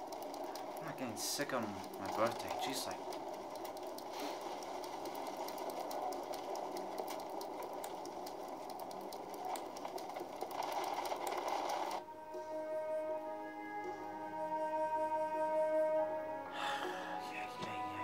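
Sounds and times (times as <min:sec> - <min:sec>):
small clicks and rattles: 0:00.0 - 0:12.0
wind and rain noise: 0:00.0 - 0:12.1
music: 0:00.0 - 0:18.0.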